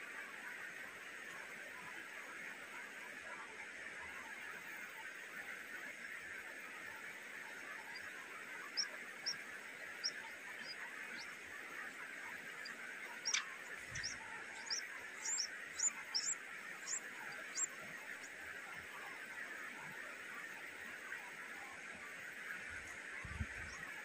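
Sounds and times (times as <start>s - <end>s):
steady high buzzing drone: 6.6s - 24.0s
nestling birds cheeping: 7.5s - 19.3s.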